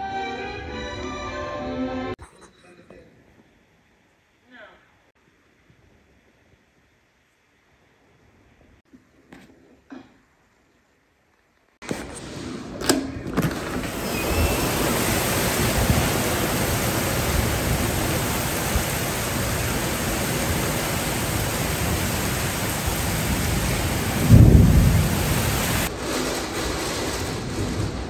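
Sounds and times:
heavy rain pouring: 13.5 - 28.0
low rumble of thunder: 13.9 - 28.0.

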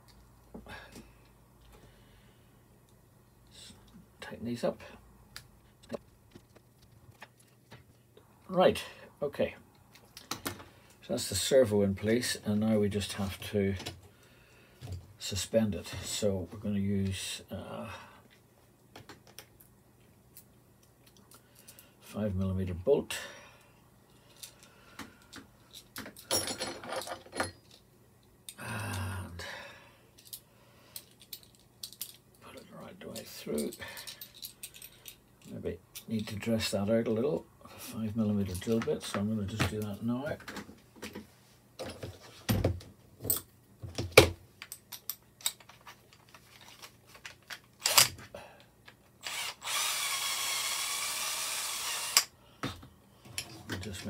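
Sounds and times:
bolt and nut clinking: 44.6 - 46.4
drill motor running: 49.2 - 52.3.

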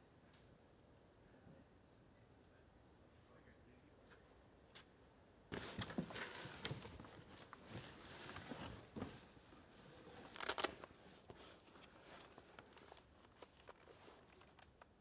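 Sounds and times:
rustling inside a bag: 5.6 - 14.8.

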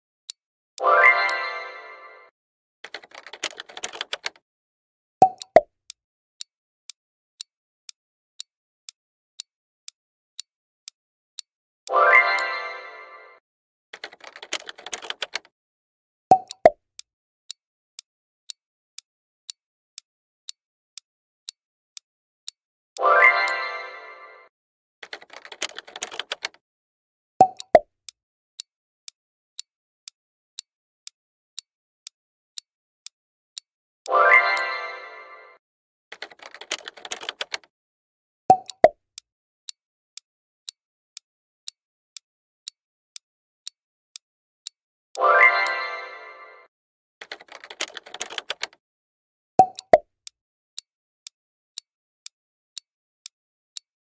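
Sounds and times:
clock ticking: 0.3 - 1.4, 2.8 - 4.4, 5.2 - 6.5, 9.4 - 12.5, 14.0 - 15.5, 16.3 - 21.6, 23.0 - 23.6, 25.0 - 26.6, 27.4 - 27.9, 28.6 - 34.7, 36.1 - 37.7, 38.5 - 39.8, 42.6 - 45.8, 47.2 - 48.8, 49.6 - 53.9.

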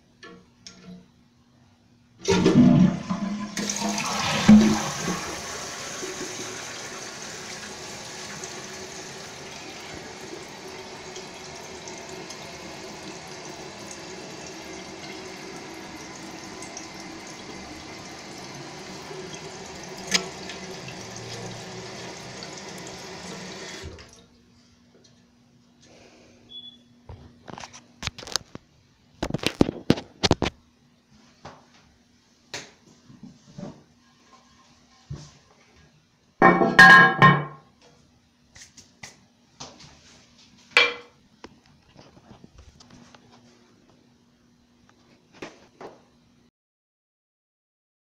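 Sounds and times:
toilet flushing water rush: 2.2 - 24.2
fill valve hissing: 2.3 - 24.0
toilet thump: 36.4 - 37.6.

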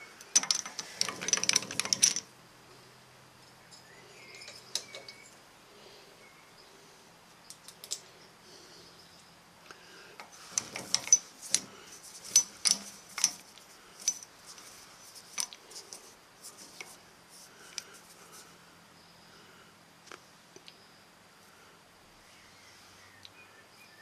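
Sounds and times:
faint steady hum: 0.0 - 24.0
metal chips clicking and tinkling: 0.2 - 2.3.

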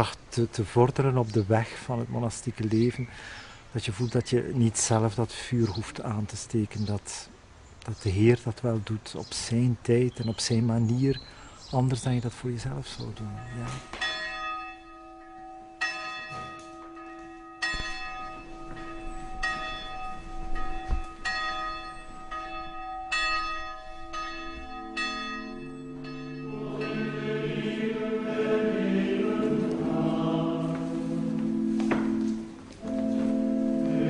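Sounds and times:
church bells ringing: 12.8 - 34.0
men's choir chanting: 26.4 - 31.6.

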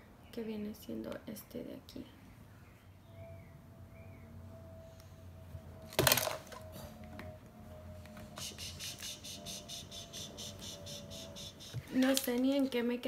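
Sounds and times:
object falling with a clatter: 5.9 - 6.6
fast high-pitched chirping: 8.4 - 11.9.

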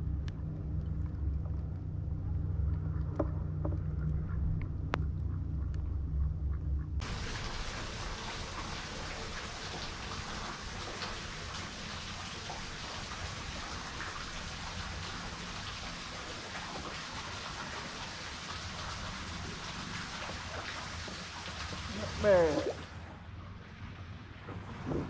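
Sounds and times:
boat motor humming: 0.0 - 7.4, 19.0 - 25.0
water drops pattering on lake: 0.0 - 23.0.

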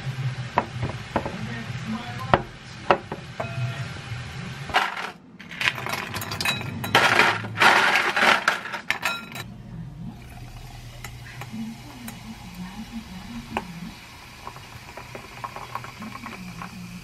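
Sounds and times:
ice cubes clinking into glass: 4.7 - 9.4.

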